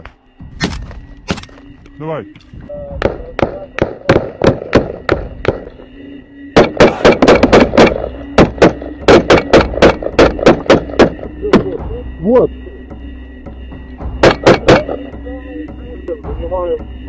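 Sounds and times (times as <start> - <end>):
assault rifle gunshots: 6.6 - 11.2.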